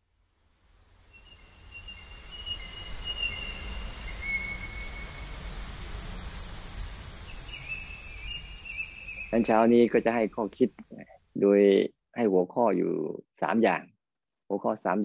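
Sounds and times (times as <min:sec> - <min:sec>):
insects chirping: 0:00.5 - 0:10.8.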